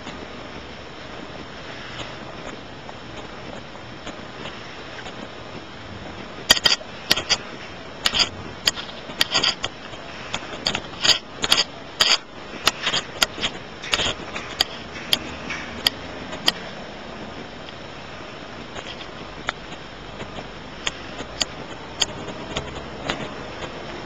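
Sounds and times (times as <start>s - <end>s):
steady hiss: 0.0s - 24.0s
sharp clicks and knocks: 6.4s - 16.8s, 18.7s - 24.0s.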